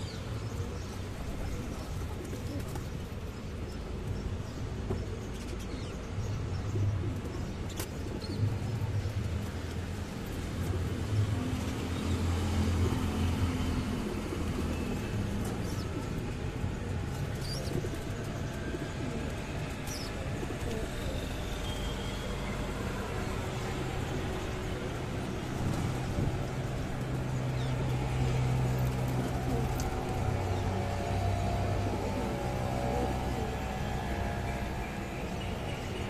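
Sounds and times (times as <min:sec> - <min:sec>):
city road traffic hum: 0:00.0 - 0:36.0
pigeons cooing: 0:23.2 - 0:36.0.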